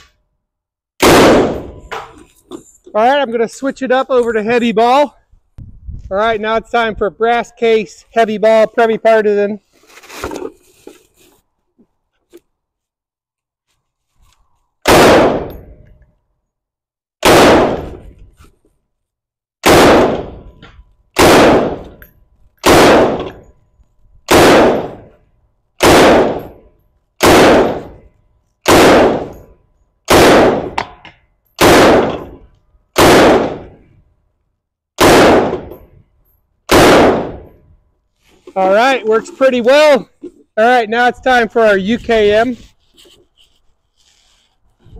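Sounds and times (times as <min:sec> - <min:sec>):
rifle shots with ringing echo: 0:01.0 - 0:02.2, 0:14.9 - 0:15.8, 0:17.2 - 0:18.2, 0:19.6 - 0:20.6, 0:21.2 - 0:22.0, 0:22.6 - 0:23.6, 0:24.3 - 0:25.2, 0:25.8 - 0:31.0, 0:31.6 - 0:33.9, 0:35.0 - 0:36.0, 0:36.7 - 0:37.7.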